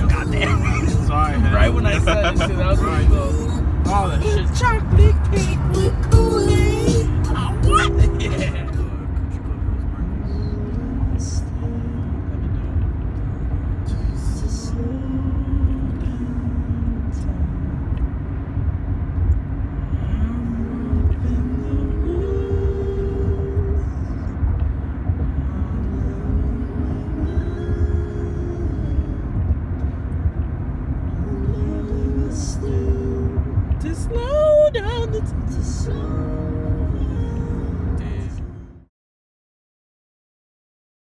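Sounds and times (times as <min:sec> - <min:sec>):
music with singing voice: 0:00.0 - 0:12.8, 0:13.4 - 0:18.2, 0:19.9 - 0:30.0, 0:31.0 - 0:38.9
car cabin road rumble: 0:00.0 - 0:38.9.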